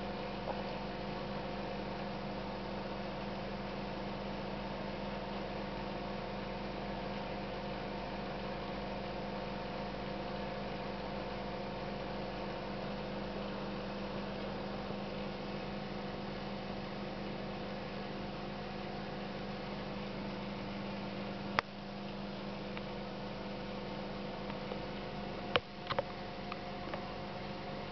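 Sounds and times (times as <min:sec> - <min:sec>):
steady electrical hum: 0:00.0 - 0:27.9.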